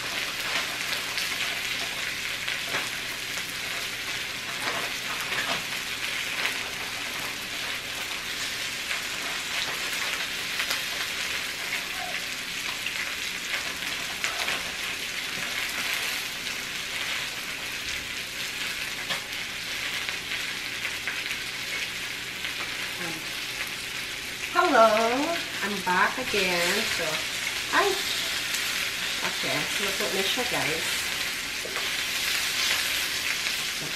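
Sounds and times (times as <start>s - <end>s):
crackles and pops: 0.0s - 25.6s
chicken sizzling on a grill: 0.0s - 33.9s.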